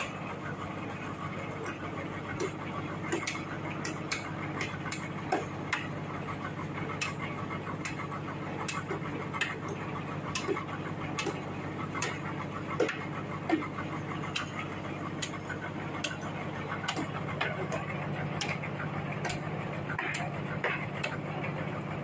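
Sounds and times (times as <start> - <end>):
engine idling hum: 0.0 - 22.0.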